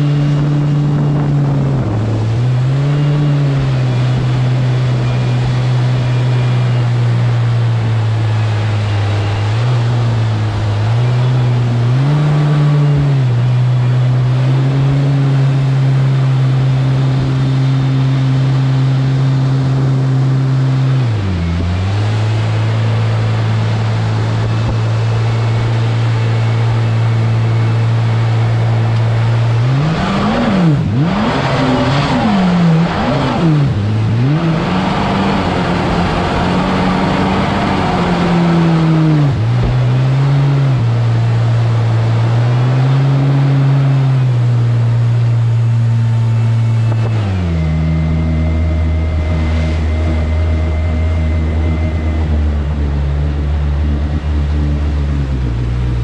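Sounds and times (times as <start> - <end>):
jet boat engine revving: 0.0 - 56.0
rush of jet wash: 0.0 - 56.0.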